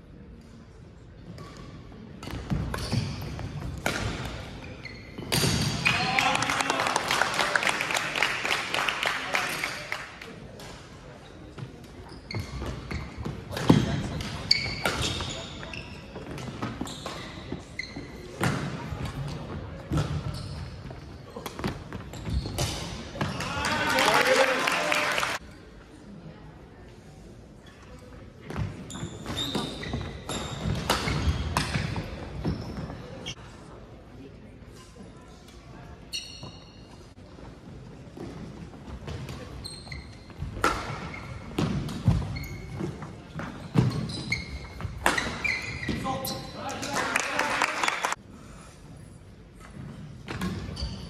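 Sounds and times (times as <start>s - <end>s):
sneakers squeaking: 1.2s - 6.0s, 11.2s - 23.7s, 27.6s - 33.6s, 35.4s - 48.1s, 49.5s - 51.0s.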